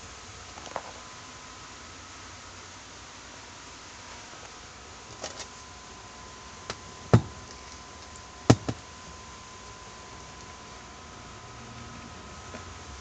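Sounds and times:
faint steady hum: 0:00.0 - 0:13.0
knocks of handling a case: 0:07.1 - 0:07.4, 0:08.5 - 0:08.8.

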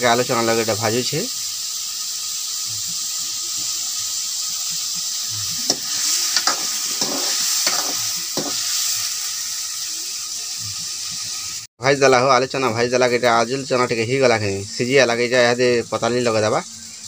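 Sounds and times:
vegetables sizzling in hot oil: 0:00.0 - 0:17.0
metal ladle scraping a pan: 0:05.7 - 0:09.0.

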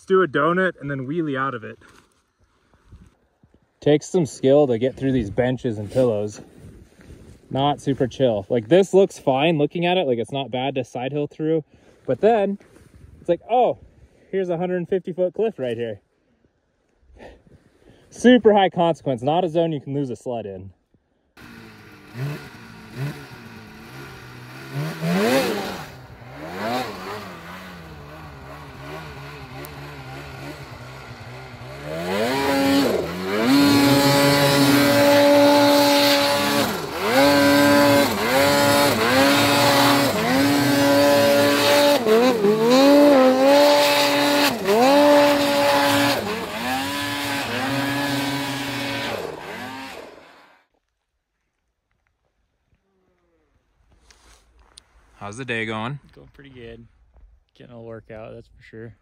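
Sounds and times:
snowmobile engine revving: 0:21.4 - 0:50.6.

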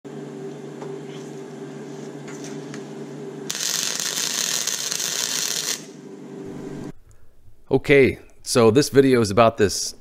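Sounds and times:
low hum: 0:00.1 - 0:08.5
welder arc crackling hiss: 0:03.5 - 0:06.0.

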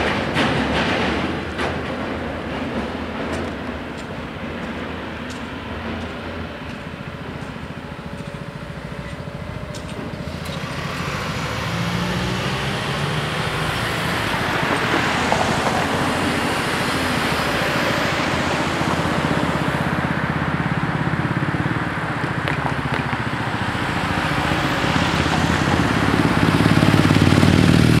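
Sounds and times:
cars driving over level crossing: 0:00.0 - 0:28.0
motorcycle passing close by: 0:10.3 - 0:19.6, 0:22.3 - 0:28.0.

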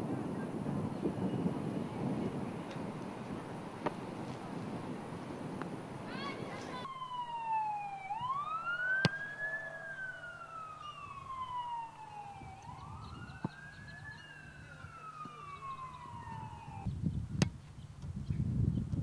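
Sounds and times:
emergency siren wailing: 0:06.8 - 0:16.9.

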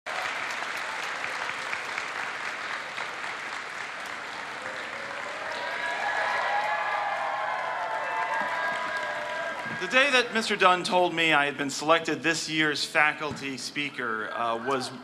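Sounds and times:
crowd applauding: 0:00.1 - 0:10.7.

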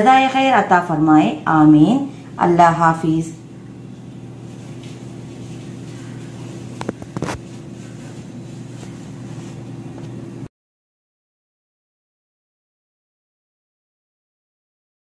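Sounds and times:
low machine hum: 0:00.0 - 0:10.5.

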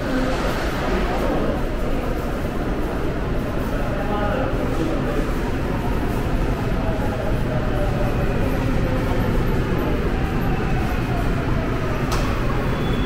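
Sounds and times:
subway train rumble: 0:00.0 - 0:13.0.

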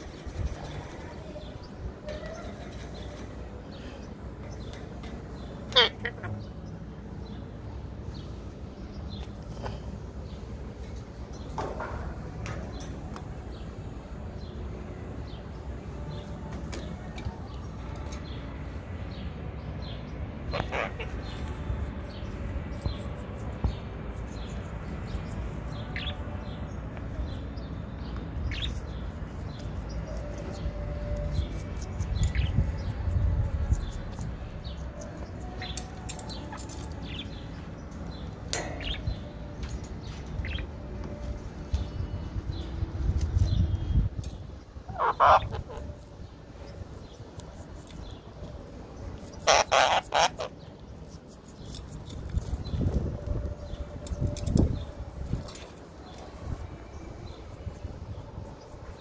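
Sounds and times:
birds chirping: 0:00.0 - 0:59.0
steady low rumble: 0:00.0 - 0:59.0
parakeet squawking: 0:05.7 - 0:06.4, 0:20.5 - 0:21.3, 0:44.9 - 0:46.0, 0:49.3 - 0:50.6.

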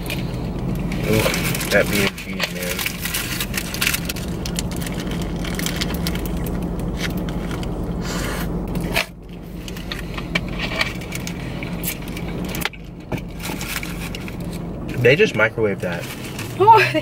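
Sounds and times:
handling and crinkling clicks: 0:00.0 - 0:07.9, 0:08.7 - 0:15.0
car engine and ventilation hum: 0:00.0 - 0:17.0.

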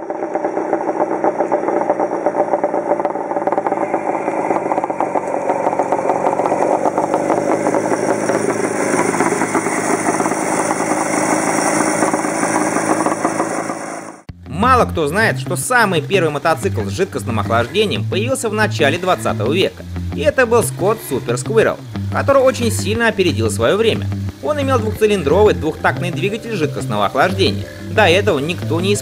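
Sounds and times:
motorcycle engine running: 0:00.0 - 0:29.0.

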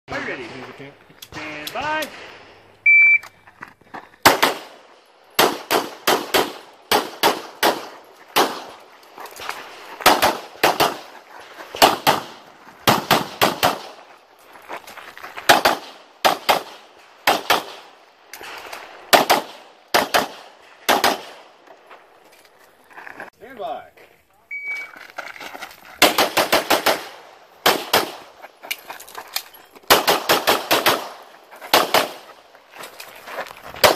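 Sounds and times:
pistol shots: 0:04.2 - 0:08.8, 0:10.0 - 0:11.1, 0:11.8 - 0:14.0, 0:15.5 - 0:18.0, 0:19.1 - 0:21.5, 0:26.0 - 0:28.4, 0:29.9 - 0:32.3.

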